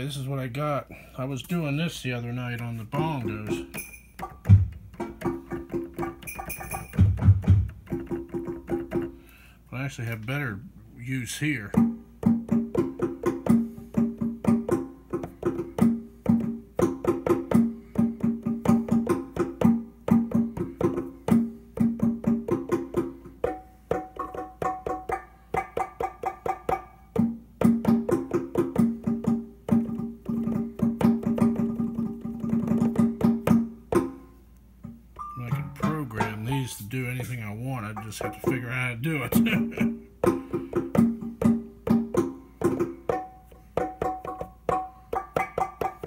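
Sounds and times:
plucked string notes: 0:02.5 - 0:09.2, 0:34.8 - 0:43.3.

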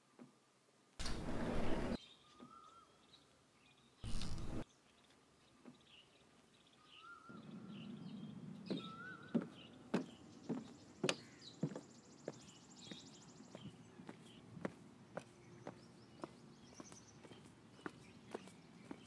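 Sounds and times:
birds chirping: 0:01.0 - 0:19.0
faint high-pitched buzz: 0:04.0 - 0:04.6
footsteps walking: 0:04.0 - 0:04.6, 0:09.4 - 0:19.0.

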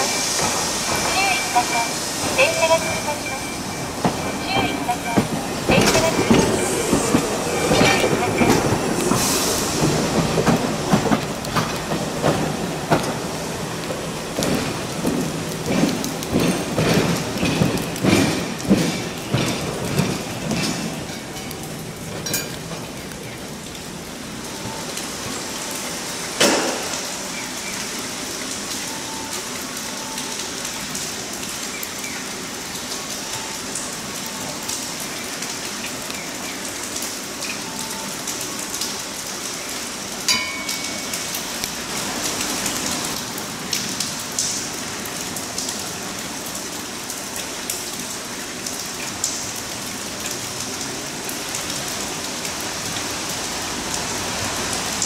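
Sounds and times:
rain hissing on pavement: 0:00.0 - 0:55.0.

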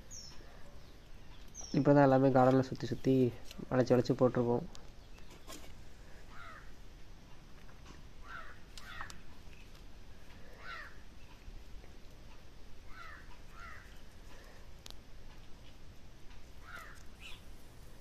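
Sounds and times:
crows cawing: 0:06.2 - 0:06.8, 0:08.2 - 0:09.2, 0:10.4 - 0:11.0, 0:12.8 - 0:14.6, 0:16.6 - 0:17.4.

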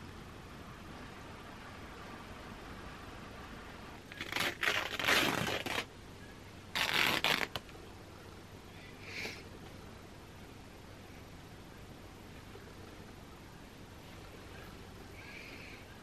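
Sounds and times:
fabric being torn by hand: 0:04.1 - 0:05.9, 0:06.7 - 0:07.6.

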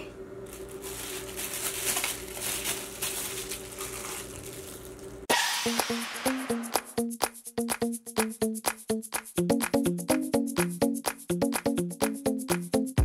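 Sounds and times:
plastic bag rustling: 0:00.4 - 0:05.3
music with short repeated notes: 0:05.5 - 0:13.0.

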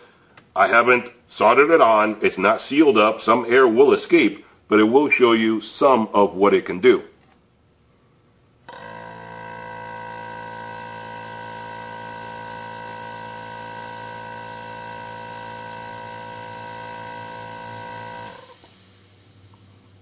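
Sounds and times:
compressor humming: 0:08.5 - 0:20.0.

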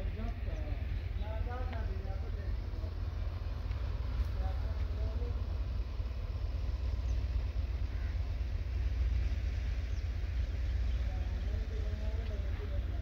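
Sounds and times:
low rumble: 0:00.0 - 0:13.0
crow cawing: 0:07.8 - 0:08.4.

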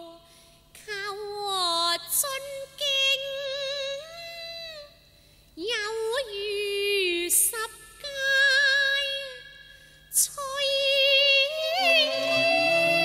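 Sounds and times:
woman singing wavering notes: 0:11.5 - 0:13.0
low accompanying instrument: 0:11.8 - 0:13.0.

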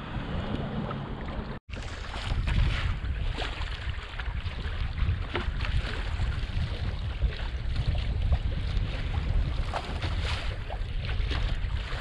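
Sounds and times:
sharp splashes: 0:00.0 - 0:12.0
water rushing along hull: 0:00.0 - 0:12.0
wind buffeting microphone: 0:00.0 - 0:12.0.

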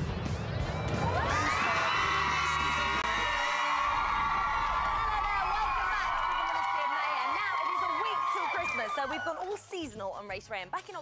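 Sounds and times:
theme music: 0:00.0 - 0:05.7
children cheering and screaming: 0:01.0 - 0:09.4.

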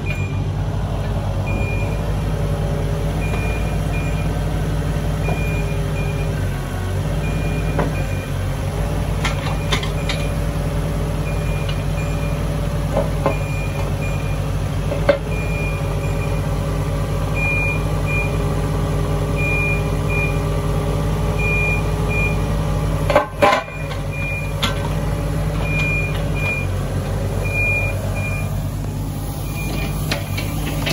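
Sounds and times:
excavator diesel engine running: 0:00.0 - 0:30.9
hydraulic whine: 0:23.4 - 0:30.9.

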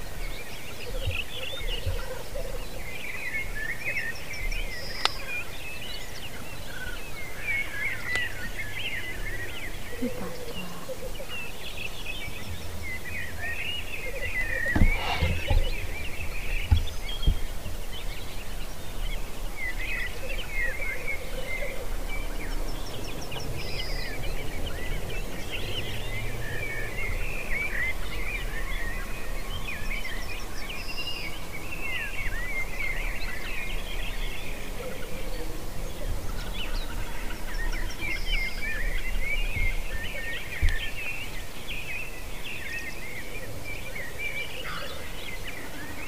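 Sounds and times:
small birds chirping: 0:00.0 - 0:46.0
dull knocks: 0:14.7 - 0:15.8.

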